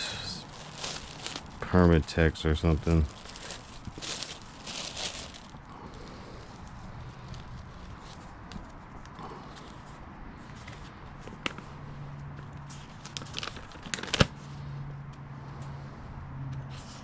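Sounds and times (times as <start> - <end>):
paper crinkling: 0.4 - 9.8, 12.7 - 14.4.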